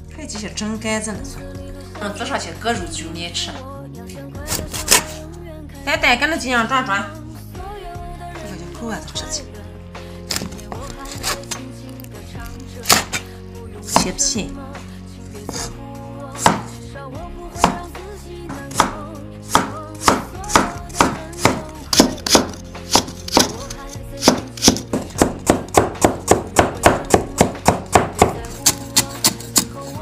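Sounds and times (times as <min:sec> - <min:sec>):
cleaver chopping on wooden board: 0:12.8 - 0:13.2, 0:16.4 - 0:16.7, 0:17.6 - 0:17.9, 0:18.7 - 0:29.8.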